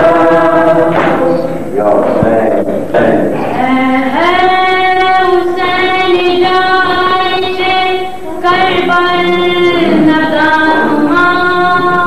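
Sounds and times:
boy singing a lament: 0.0s - 1.6s, 3.0s - 12.0s.

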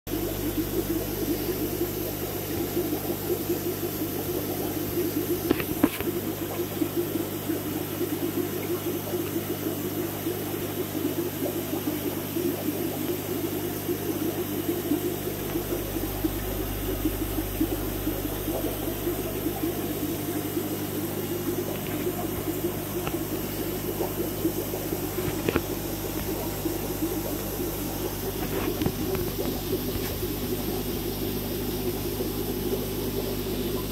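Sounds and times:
aquarium filter water noise: 0.1s - 33.9s
low hum: 13.0s - 33.9s.

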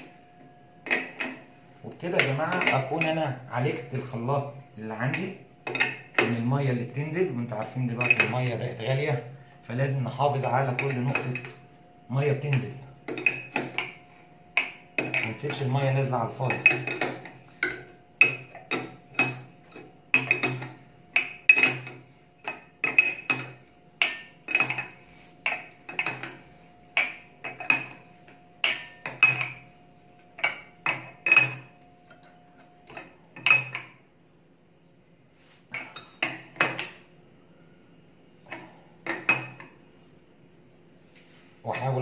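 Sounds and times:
wrench clinking on metal nut: 8.0s - 8.4s, 16.5s - 26.4s, 30.4s - 33.9s.

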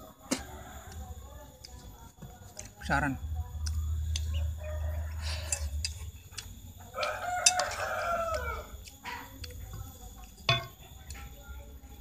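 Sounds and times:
rooster crowing: 3.6s - 6.2s, 6.8s - 8.9s.

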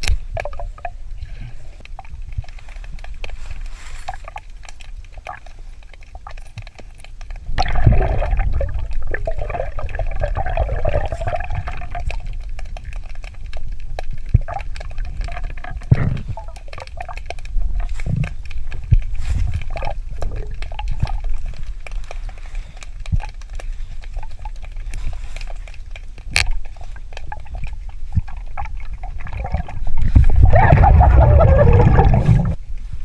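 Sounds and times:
low underwater rumble: 7.4s - 22.0s, 26.7s - 32.7s
diver's breath bubbling underwater: 7.6s - 12.4s, 27.5s - 32.6s.

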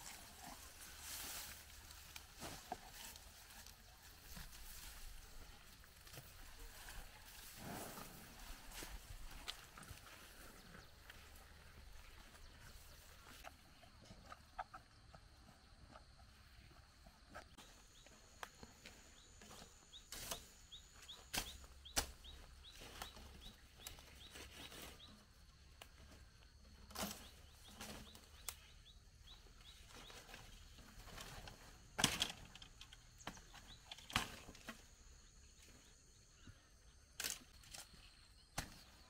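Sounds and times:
plants snapping and rustling: 37.2s - 38.0s.

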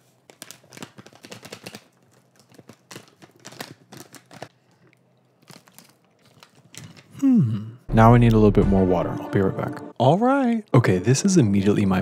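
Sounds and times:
foil packet crinkling: 0.0s - 7.2s.

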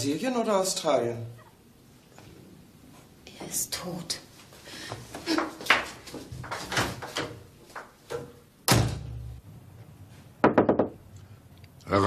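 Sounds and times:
door slamming shut: 8.6s - 9.4s.

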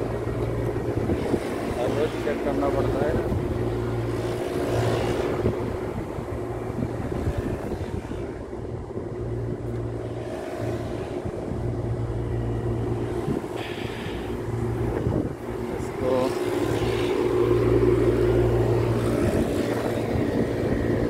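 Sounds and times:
compressors humming: 0.0s - 21.0s
fans rushing air: 0.0s - 21.0s.

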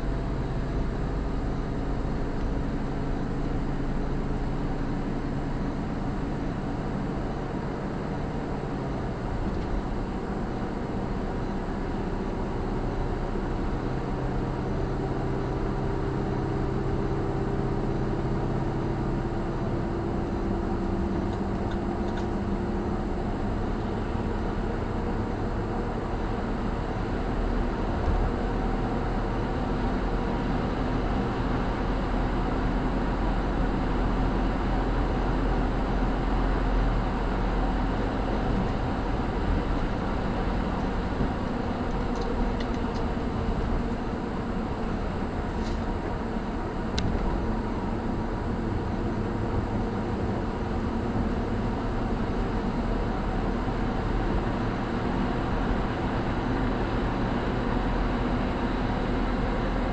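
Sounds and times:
car engine hum: 0.0s - 59.9s
tyre and road noise: 19.5s - 59.9s.

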